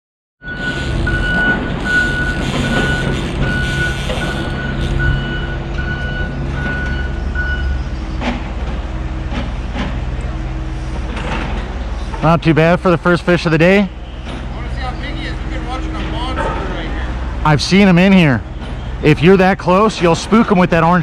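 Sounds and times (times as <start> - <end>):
back-up alarm beeping: 0.4 - 8.0.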